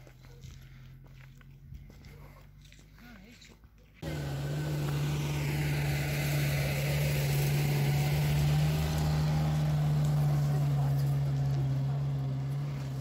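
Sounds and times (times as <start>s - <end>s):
truck engine running: 4.0s - 13.0s
tyres hissing on road: 4.0s - 13.0s.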